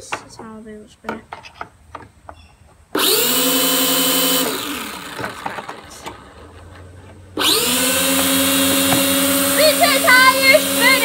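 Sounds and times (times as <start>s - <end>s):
small electric motors whining: 3.0s - 11.0s.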